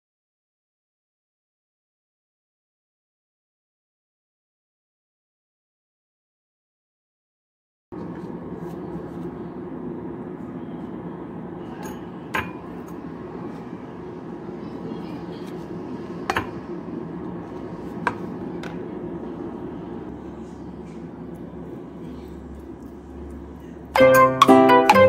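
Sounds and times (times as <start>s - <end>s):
steady low hum: 8.0s - 25.0s.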